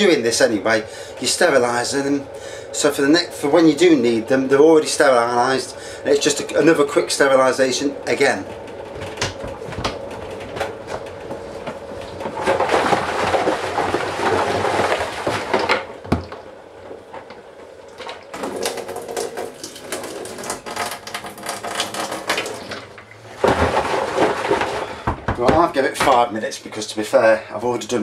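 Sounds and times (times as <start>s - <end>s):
rustling and splashing in bucket: 8.1s - 17.2s, 18.0s - 26.3s.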